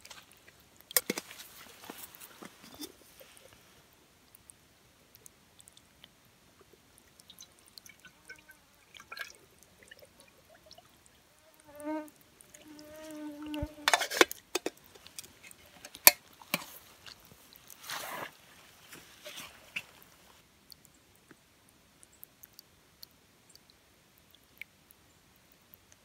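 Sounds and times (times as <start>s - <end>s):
water splashing and pouring: 6.9s - 11.3s, 12.1s - 20.4s
water gurgling into pot: 7.2s - 10.9s, 12.6s - 16.6s.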